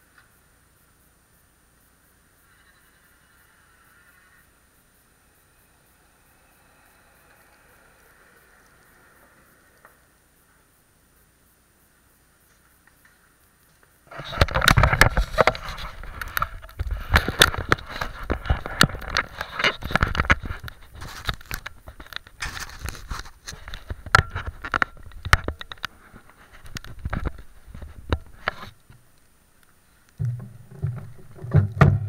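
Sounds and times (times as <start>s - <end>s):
clicks knocks and rattles: 14.1s - 29.0s, 30.2s - 32.0s.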